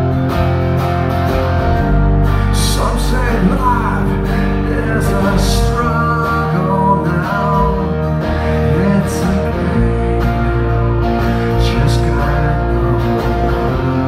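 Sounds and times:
electric guitars and bass: 0:00.0 - 0:14.0
man singing lead vocal: 0:02.4 - 0:14.0.

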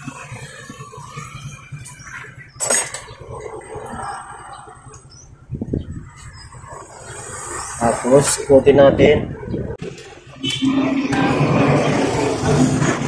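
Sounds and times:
loud metal clatter: 0:09.8 - 0:13.0.

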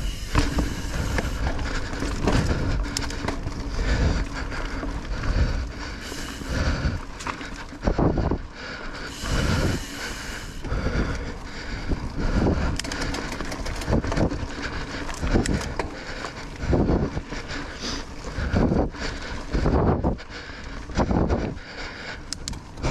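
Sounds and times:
bike thumping over bumps: 0:00.0 - 0:05.9
tyres and wind rushing: 0:00.0 - 0:22.9.

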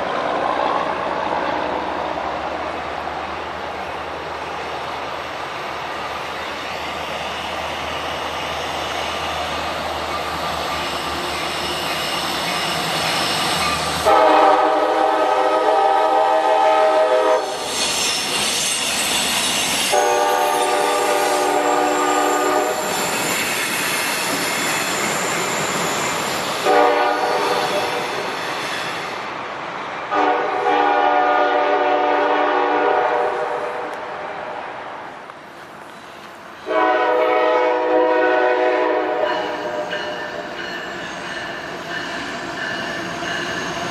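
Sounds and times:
freight train rumble and wheel clatter: 0:00.0 - 0:43.9
locomotive air horn: 0:14.0 - 0:17.6, 0:19.9 - 0:22.9, 0:26.6 - 0:28.0, 0:30.1 - 0:34.0, 0:36.6 - 0:39.9.

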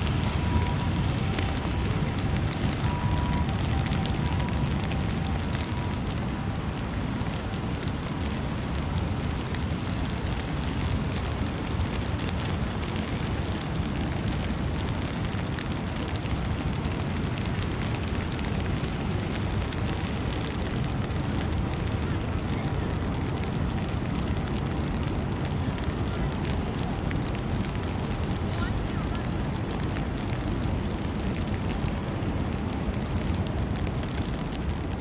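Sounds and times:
low city rumble: 0:00.0 - 0:35.0.

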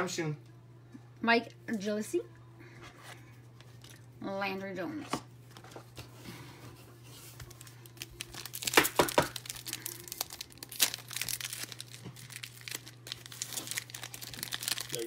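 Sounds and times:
wrapper tearing and crinkling: 0:07.4 - 0:15.0.

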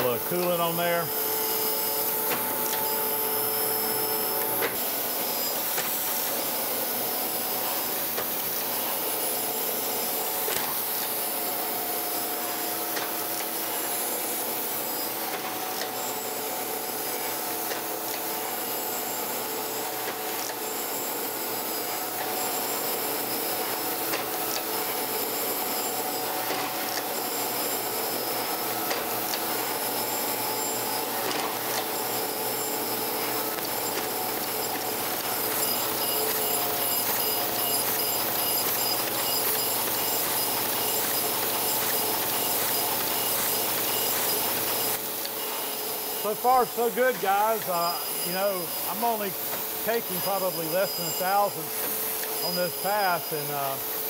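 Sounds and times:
machine humming: 0:00.0 - 0:54.0
grinding wheel hissing on steel: 0:20.6 - 0:54.0.

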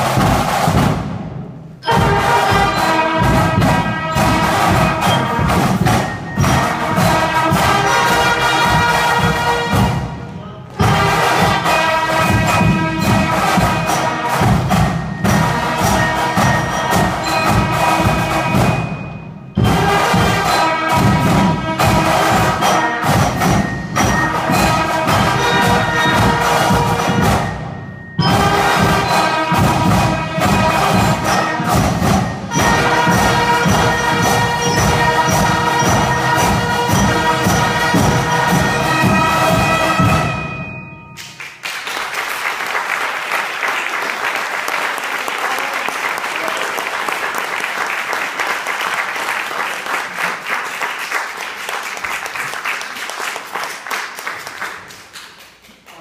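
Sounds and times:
band with drums playing: 0:00.0 - 0:41.6
audience applause: 0:41.4 - 0:56.0.

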